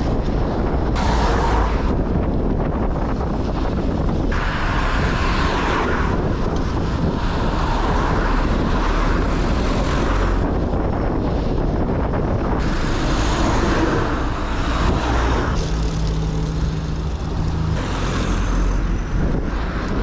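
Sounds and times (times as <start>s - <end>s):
car traffic: 0.0s - 20.0s
wind buffeting microphone: 0.0s - 20.0s.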